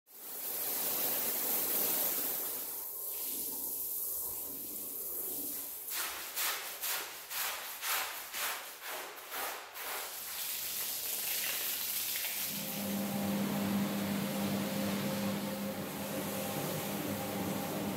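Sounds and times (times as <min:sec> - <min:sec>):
hose water spraying: 0:00.1 - 0:17.9
push brush scrubbing rug: 0:06.0 - 0:10.4.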